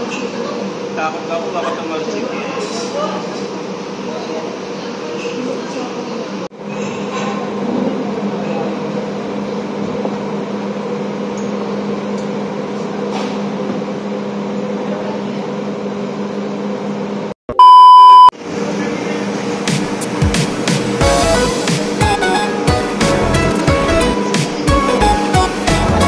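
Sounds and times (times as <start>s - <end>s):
test-tone beep: 17.5s - 18.3s.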